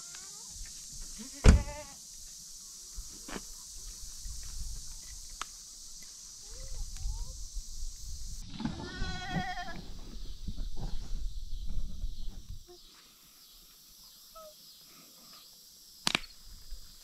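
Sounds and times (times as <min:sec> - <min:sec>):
goat bleating: 0:08.8 - 0:09.8
sharp click: 0:16.0 - 0:16.3.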